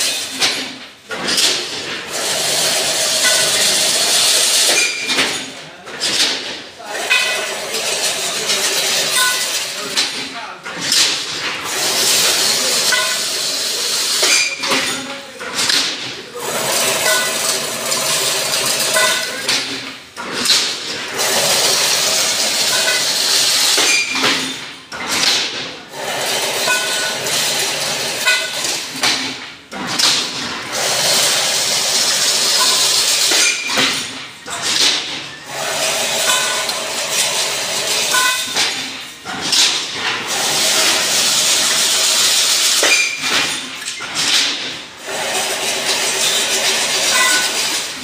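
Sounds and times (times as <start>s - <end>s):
fence machine hissing rattle: 40.2s - 42.8s, 45.0s - 48.0s.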